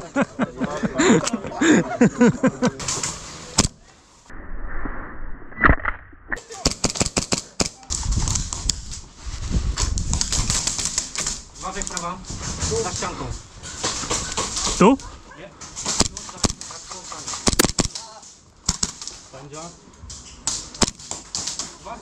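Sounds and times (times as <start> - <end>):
noisy clatter: 9.8 - 15.0, 15.7 - 18.1
gas pistol shots: 17.4 - 17.9.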